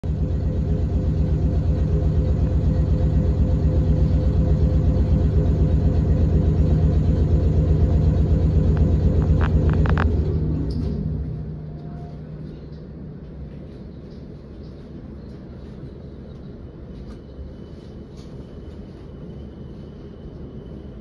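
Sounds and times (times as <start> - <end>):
train machinery throbbing: 0.0 - 15.0
constant machinery hum: 0.0 - 21.0.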